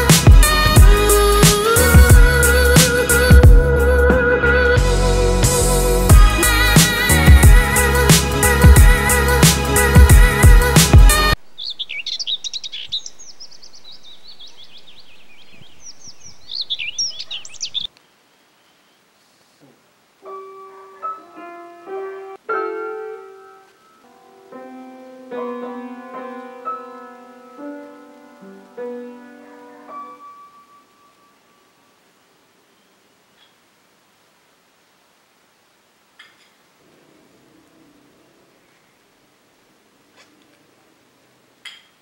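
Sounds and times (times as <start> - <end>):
upright piano playing slowly: 0.0 - 11.4, 20.2 - 31.8
birds chirping: 11.3 - 19.2.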